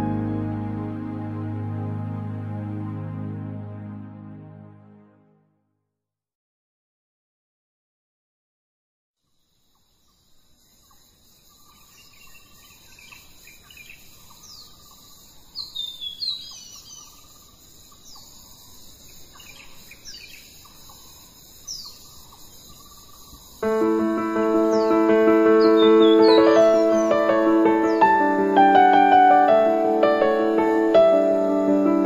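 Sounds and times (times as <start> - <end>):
birds chirping: 10.7 - 32.0.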